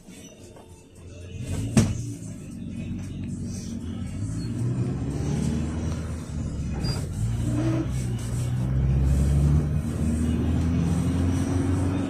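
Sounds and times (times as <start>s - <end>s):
minibus engine: 0.0s - 12.0s
road noise: 1.2s - 12.0s.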